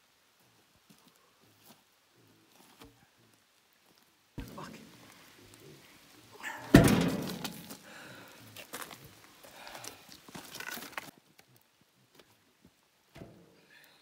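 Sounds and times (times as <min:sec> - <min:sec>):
log thudding on steel: 0:06.6 - 0:07.8, 0:13.1 - 0:13.5.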